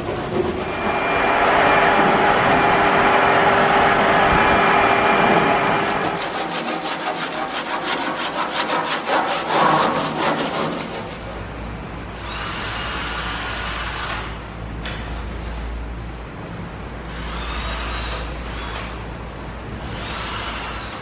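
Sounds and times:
hand tool rubbing on plywood: 6.0s - 11.4s.

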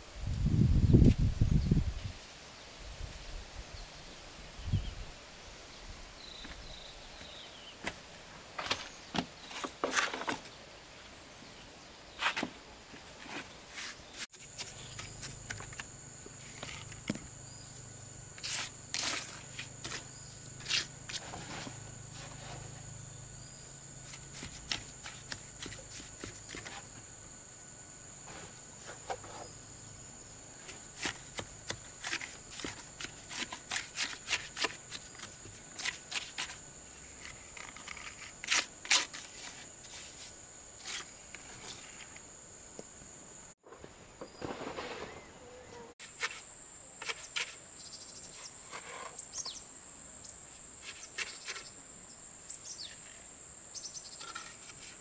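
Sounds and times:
high insect whine: 0.0s - 55.0s
trowel scraping mortar: 18.4s - 22.8s, 30.7s - 42.1s, 46.0s - 47.6s, 54.2s - 55.0s.

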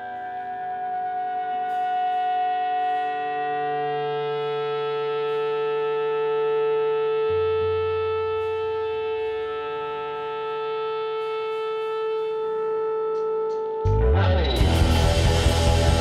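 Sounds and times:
long held note with low note: 3.6s - 16.0s
full band music: 14.4s - 16.0s.

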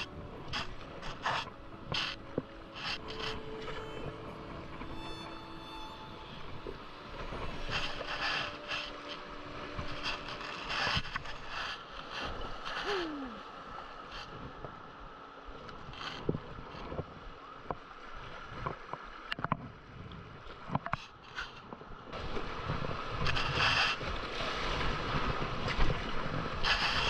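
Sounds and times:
river rapids rushing: 0.0s - 11.8s
paddle strokes splashing: 0.0s - 14.7s, 20.8s - 27.0s.

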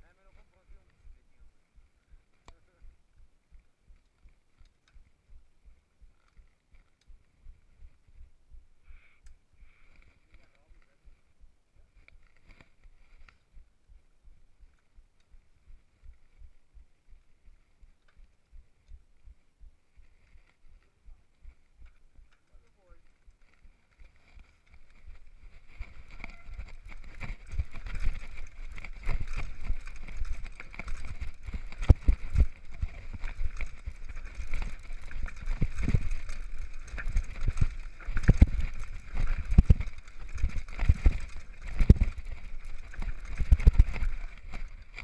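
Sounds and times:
bike tyres rumbling on dirt: 23.1s - 45.0s.

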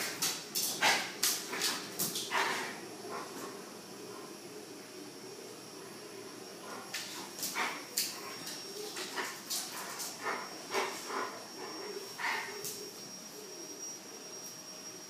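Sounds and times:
dogs snarling and yelping: 6.7s - 13.0s.

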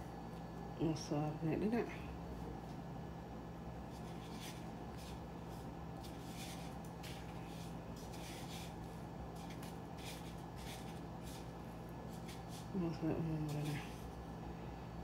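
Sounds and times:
steady low hum: 0.0s - 15.0s
scratchy rustles of breadcrumbs: 3.9s - 12.8s, 13.4s - 14.2s.

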